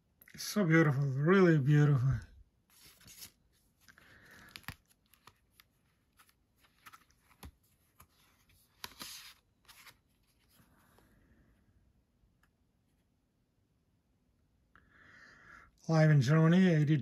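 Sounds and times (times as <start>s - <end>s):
cardboard pages rustling: 2.7s - 11.2s.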